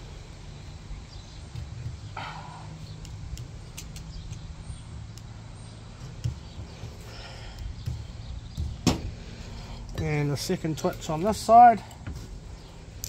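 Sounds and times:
steady low rumble: 0.0 - 13.0
wire twisting clicks and scrapes: 2.8 - 13.0.

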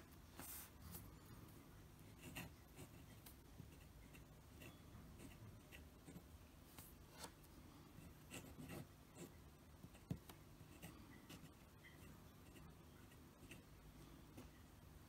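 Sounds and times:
fountain pen writing on paper: 2.0 - 6.3, 8.0 - 13.7.

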